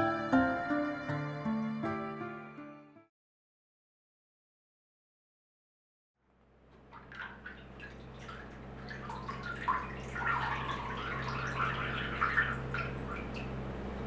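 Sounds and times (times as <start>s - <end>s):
brine splashing and dripping: 6.8s - 13.7s.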